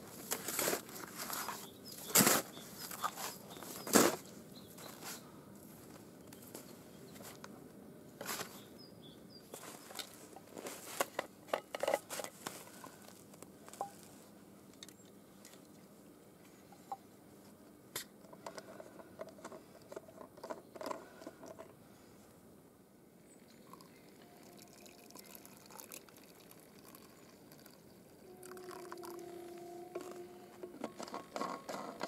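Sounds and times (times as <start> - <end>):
thermos clicks and rustles: 9.5 - 21.8.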